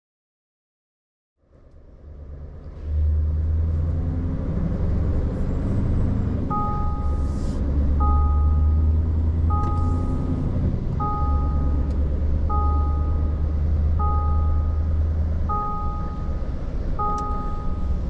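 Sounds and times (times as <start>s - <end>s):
low engine rumble: 1.4s - 18.0s
two-tone electronic warning beeper: 6.5s - 18.0s.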